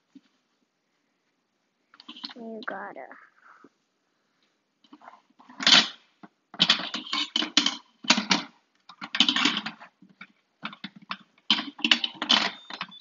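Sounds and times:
pot lid scraping and rattling: 6.6 - 13.0.

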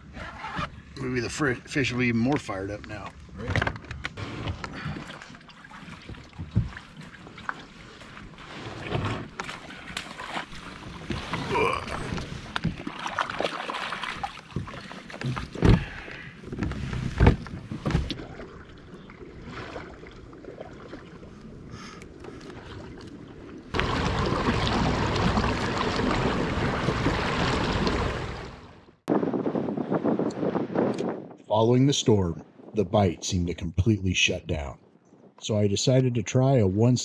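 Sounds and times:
knocks and thumps on boat: 3.4 - 18.5, 23.8 - 28.6.

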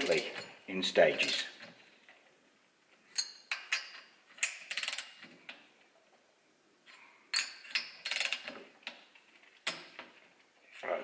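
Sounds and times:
metallic torque wrench clicks: 3.2 - 5.2, 7.4 - 9.0
ratchet clicking: 3.2 - 5.2, 7.4 - 8.6.

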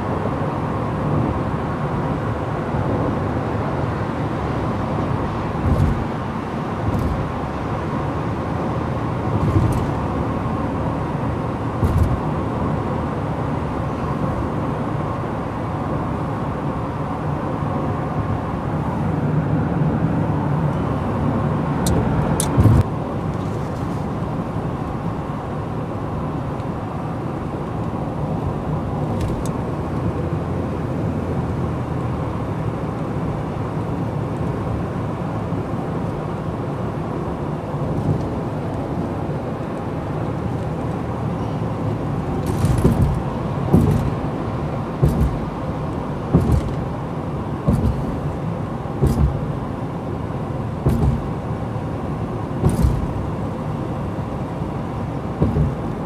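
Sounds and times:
car road and engine rumble: 0.0 - 56.0
thumps and knocks: 5.6 - 6.1, 11.8 - 12.2, 42.4 - 44.2, 45.0 - 45.6, 46.3 - 46.8, 47.6 - 48.2, 49.0 - 49.5, 50.8 - 51.3, 52.6 - 53.2, 55.4 - 56.0.

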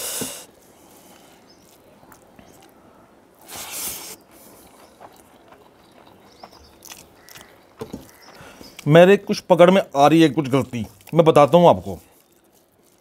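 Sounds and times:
sharp breath hiss: 0.0 - 1.4, 3.4 - 4.2.

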